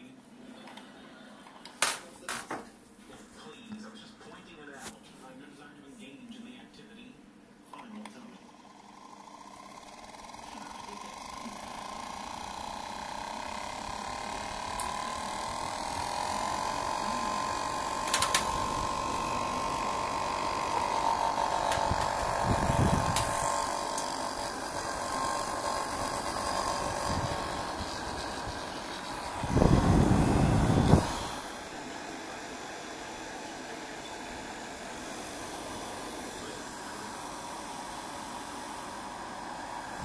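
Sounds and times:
centrifuge motor whine: 8.5s - 40.0s.

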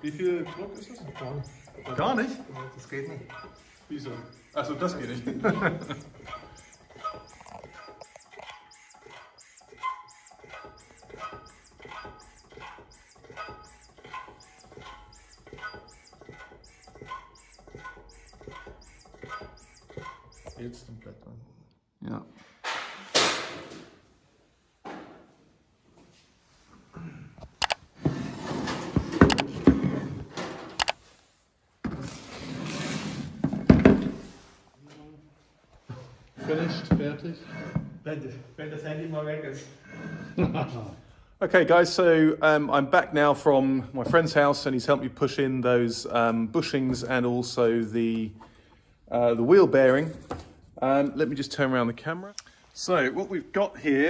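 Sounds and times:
hydraulic press pump squeak and click: 0.0s - 21.1s.

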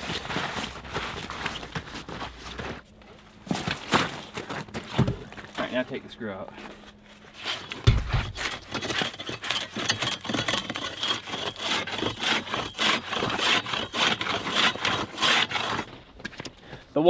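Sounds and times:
ice saw scraping through ice: 7.3s - 16.0s
low thump: 7.8s - 8.3s.

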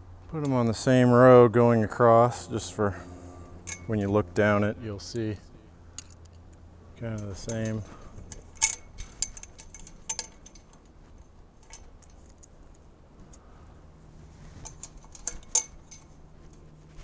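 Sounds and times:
metal twist ties clinking on wire: 3.6s - 17.0s.

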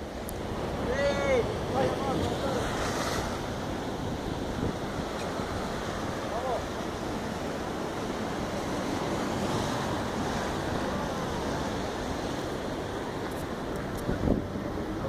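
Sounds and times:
wind on microphone: 13.0s - 14.9s.

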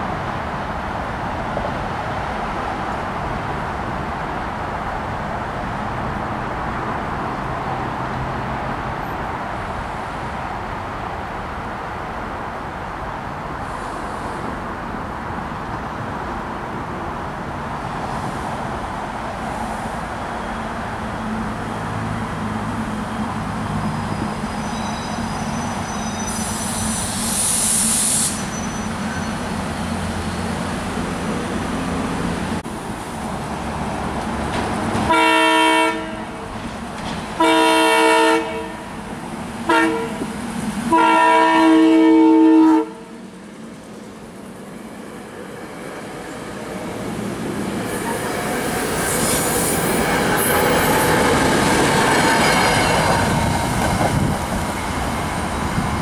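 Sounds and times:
train rumbling: 0.0s - 56.0s
train air horn blasts: 35.1s - 36.4s, 37.4s - 38.9s, 39.7s - 40.2s, 40.9s - 43.2s.

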